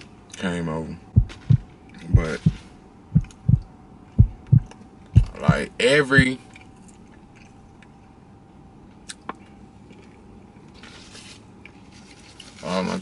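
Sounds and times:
faint steady hum: 0.0s - 13.0s
person chewing a biscuit: 6.4s - 8.0s, 9.0s - 10.8s.

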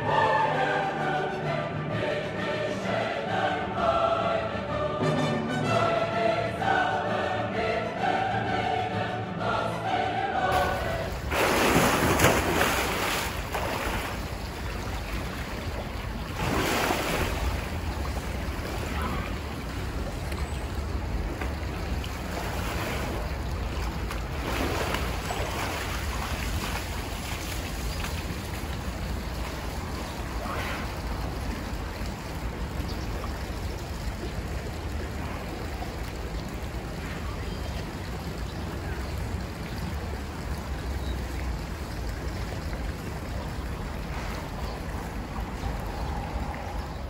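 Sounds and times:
choral music: 0.0s - 14.1s.

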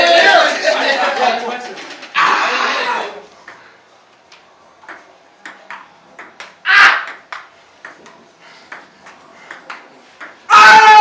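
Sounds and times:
ping-pong ball tapping: 3.4s - 3.6s, 4.3s - 10.5s.

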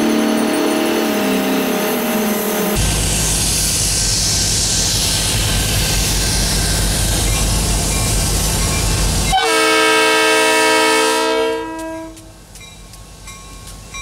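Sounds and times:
diesel locomotive engine running: 0.0s - 14.0s
low train rumble: 0.0s - 14.0s
locomotive horn chord: 9.3s - 12.3s.

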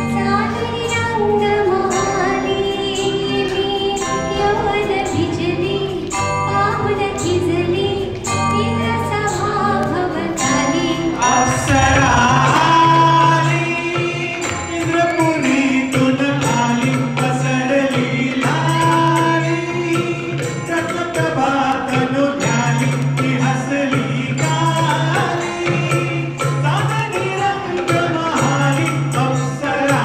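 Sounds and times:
keyboard: 0.0s - 30.0s
people singing into microphones: 0.0s - 30.0s
tabla percussion beat: 11.1s - 30.0s.

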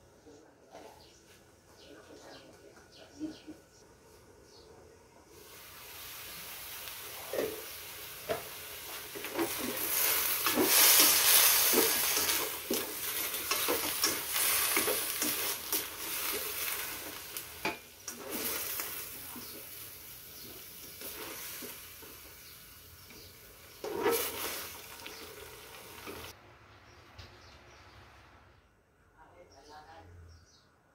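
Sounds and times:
vegetables sizzling in a wok: 5.3s - 26.4s
spatula scraping a pan: 7.2s - 19.7s, 20.3s - 22.2s, 23.7s - 25.2s.

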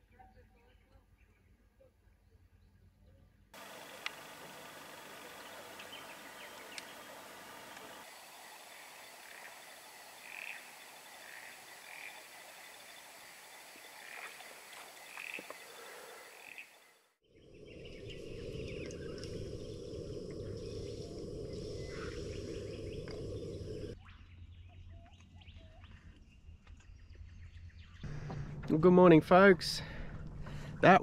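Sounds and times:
frogs calling: 3.6s - 24.0s
birds chirping: 3.6s - 26.4s
steady low rumble: 17.3s - 24.0s, 28.1s - 31.0s.

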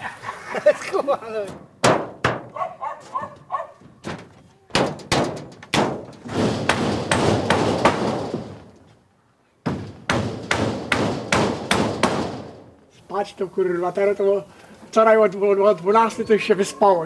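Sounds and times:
sharp knocks: 1.5s - 2.6s, 4.0s - 8.8s, 9.6s - 12.7s.

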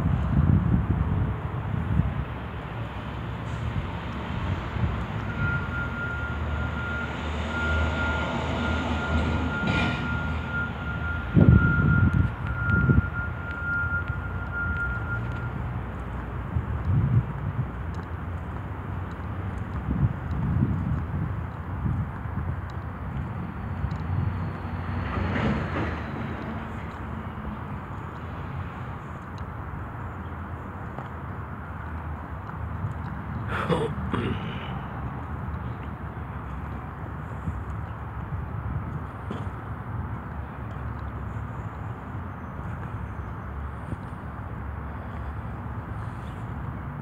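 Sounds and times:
wind buffeting microphone: 0.0s - 2.9s, 11.3s - 13.2s, 16.4s - 33.5s
urban traffic rumble: 0.0s - 47.0s.

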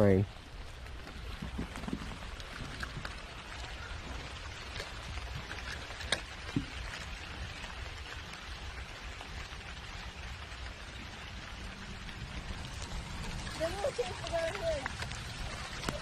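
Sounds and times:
light rain on pond and grass: 0.0s - 16.0s.

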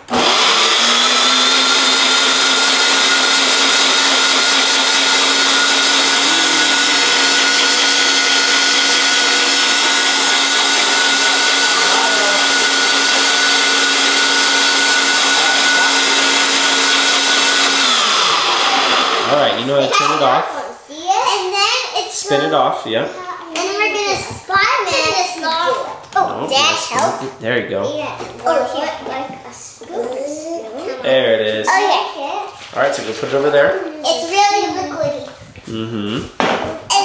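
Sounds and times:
blender motor whine: 0.0s - 20.3s.

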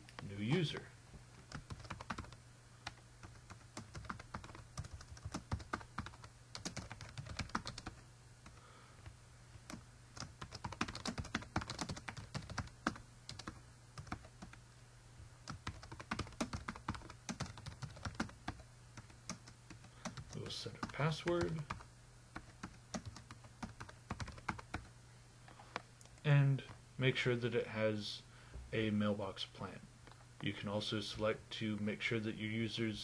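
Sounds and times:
keyboard typing: 1.5s - 8.6s, 9.6s - 14.6s, 15.5s - 24.9s.

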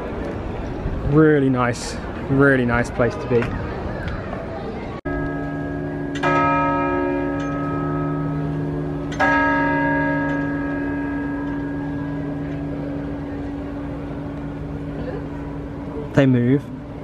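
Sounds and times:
large bell clanging: 5.1s - 17.0s.

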